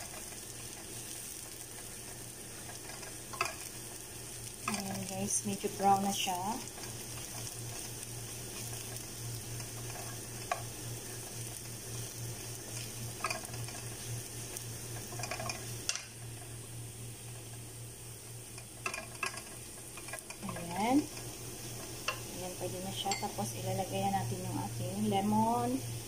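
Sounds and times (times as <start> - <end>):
garlic sizzling in oil: 0.0 - 26.0
wooden spoon scraping a pan: 4.6 - 15.8.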